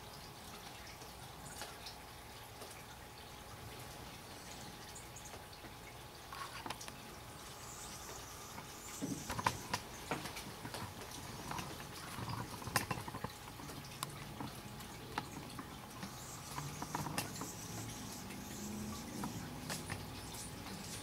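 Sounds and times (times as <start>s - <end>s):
water drops dripping: 0.0s - 21.0s.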